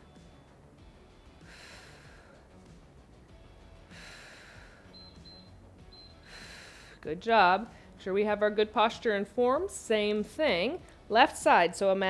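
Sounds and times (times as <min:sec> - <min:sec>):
woman breathing softly: 0:01.4 - 0:02.6, 0:03.9 - 0:05.0, 0:06.2 - 0:07.0
short high timer beeps: 0:05.0 - 0:06.2.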